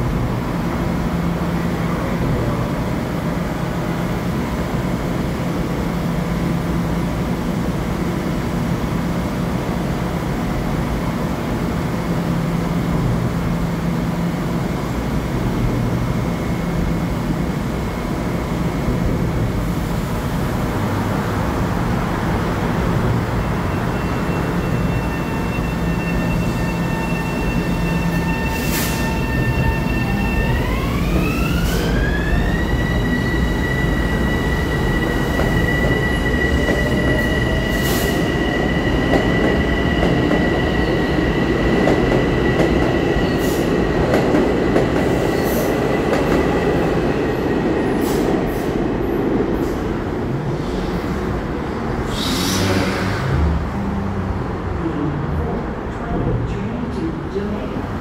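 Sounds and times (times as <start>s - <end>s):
electric train hum and whine: 0.0s - 58.0s
brief hiss: 52.1s - 53.5s.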